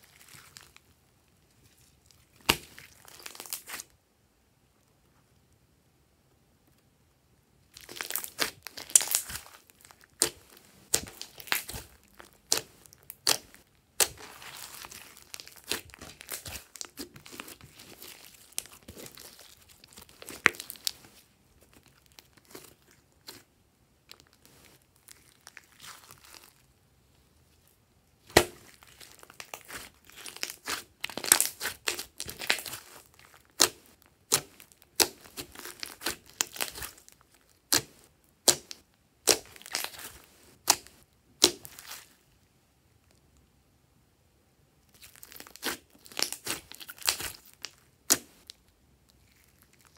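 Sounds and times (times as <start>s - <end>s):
slime crackling and popping: 1.7s - 3.9s, 7.7s - 23.4s, 28.3s - 42.1s, 44.9s - 49.9s.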